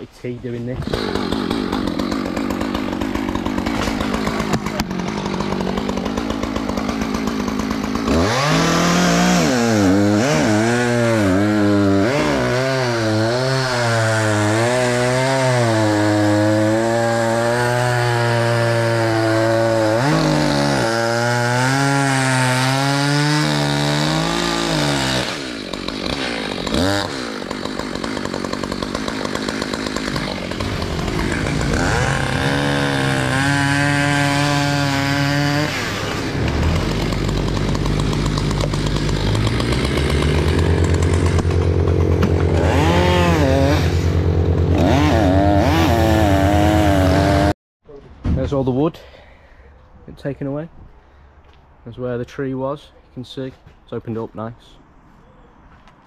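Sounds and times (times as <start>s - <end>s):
chainsaw cutting: 0.5s - 47.6s.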